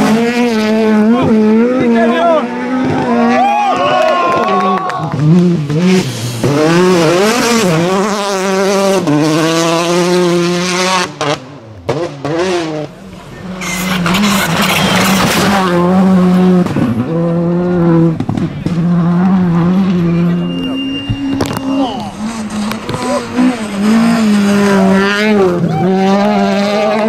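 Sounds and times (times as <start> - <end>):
rally car engines revving: 0.0 - 27.0.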